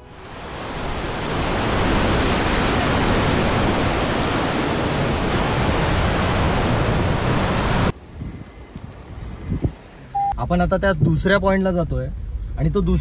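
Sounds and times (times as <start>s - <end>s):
waterfall rushing: 0.1s - 7.9s.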